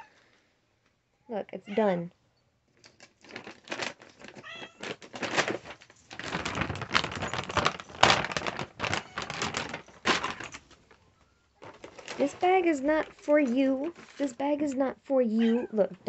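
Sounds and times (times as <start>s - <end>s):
plastic bag rustling: 2.8s - 14.8s.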